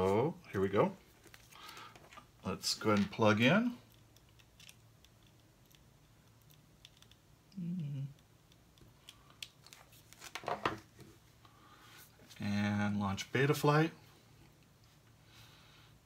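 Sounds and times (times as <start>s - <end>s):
low voice hum: 7.5s - 8.2s.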